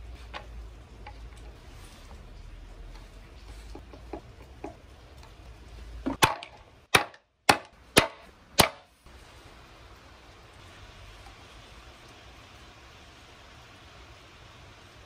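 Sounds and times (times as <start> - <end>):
mallet striking metal punch: 6.2 - 8.9.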